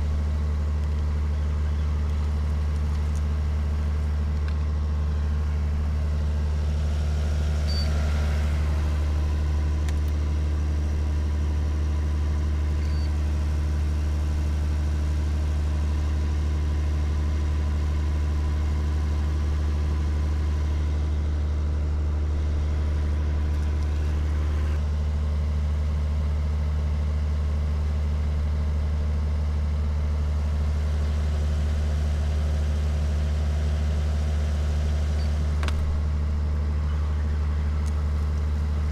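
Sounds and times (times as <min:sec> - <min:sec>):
motor humming: 0:00.0 - 0:11.7.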